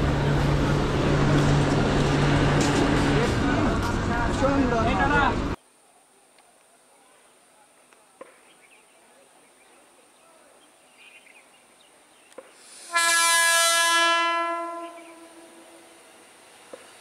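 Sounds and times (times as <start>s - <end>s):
train horn blast: 12.9s - 16.0s.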